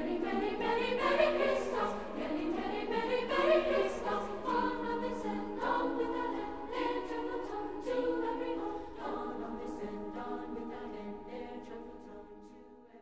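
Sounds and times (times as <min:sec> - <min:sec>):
choir singing held chords: 0:00.0 - 0:13.0.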